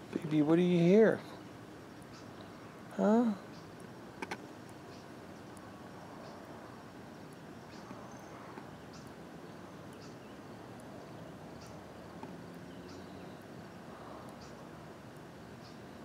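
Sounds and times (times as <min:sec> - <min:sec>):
small bird chirping: 0:00.0 - 0:14.8, 0:15.4 - 0:16.0.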